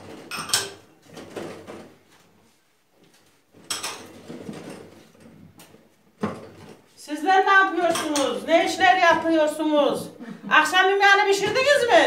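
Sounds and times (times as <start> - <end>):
dishes clattering: 0.0 - 1.8, 3.6 - 4.9, 7.9 - 8.4
dishes clinking in sink: 0.2 - 0.9, 3.6 - 4.2, 7.9 - 8.4.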